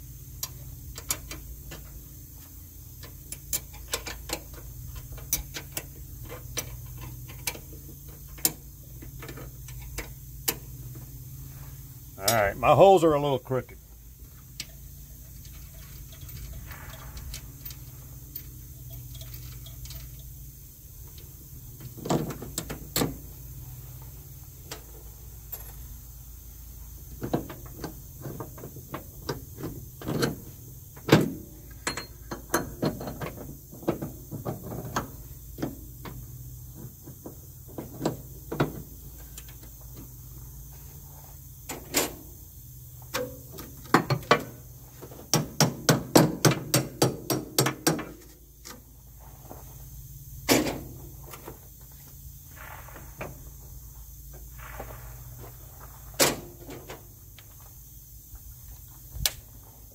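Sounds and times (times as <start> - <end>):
steady low hum: 0.0 - 59.9
hand tools knocking and clanking: 45.1 - 48.3.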